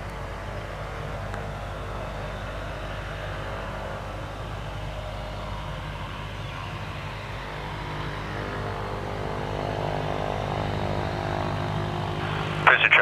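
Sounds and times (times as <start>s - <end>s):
turboprop engine hum and whine: 0.0s - 13.0s.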